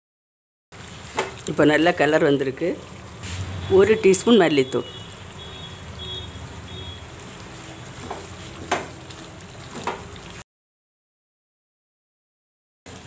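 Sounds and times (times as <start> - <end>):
chicken sizzling in a pan: 0.8 - 10.4
spatula knocking against a pan: 8.0 - 9.0.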